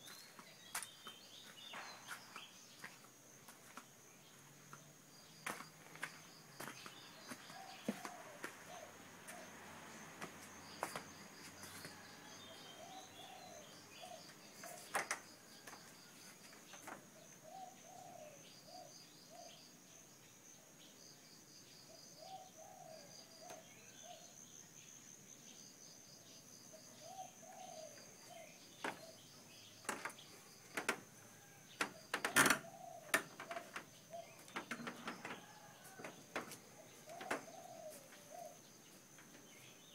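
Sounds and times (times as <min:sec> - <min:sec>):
insect drone: 0:00.0 - 0:39.9
dove cooing: 0:07.5 - 0:09.6, 0:12.5 - 0:14.9, 0:17.4 - 0:19.5, 0:27.0 - 0:29.2, 0:31.3 - 0:35.9, 0:36.8 - 0:38.6
sharp clicks and knocks: 0:29.9 - 0:31.0.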